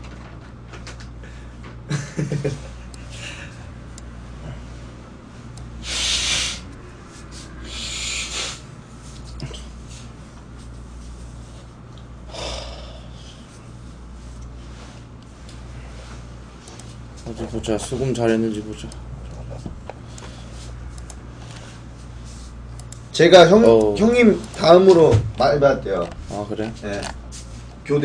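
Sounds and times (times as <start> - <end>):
steady low hum: 0.0 - 28.0
man breathing loudly: 5.8 - 6.7, 7.4 - 8.7, 12.3 - 13.5.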